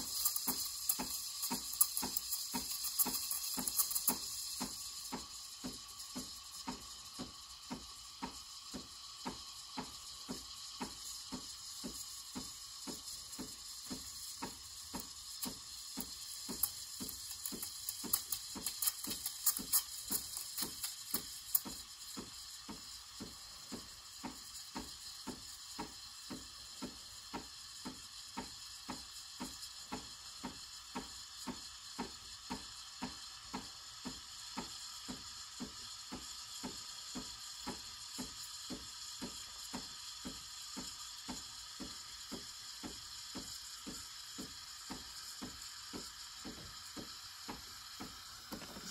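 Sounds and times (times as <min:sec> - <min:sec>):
steam wand hissing in milk: 0:00.0 - 0:48.9.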